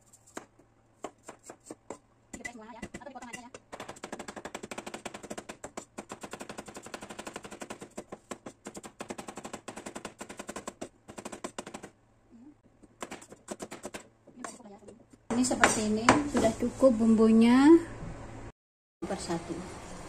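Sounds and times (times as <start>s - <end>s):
cleaver chopping on cutting board: 0.3s - 11.9s, 12.9s - 14.6s.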